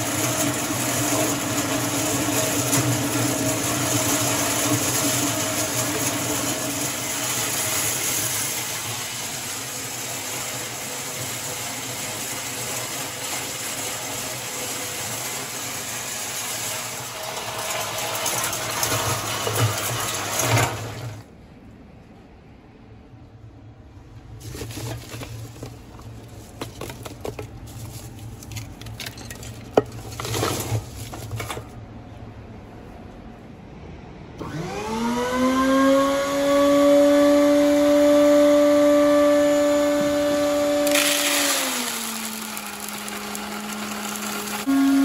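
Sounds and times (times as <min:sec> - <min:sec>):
corn cobs rattling in steel drum: 0:00.0 - 0:21.2, 0:24.4 - 0:31.6, 0:40.8 - 0:45.0
electric motor whine: 0:34.4 - 0:45.0.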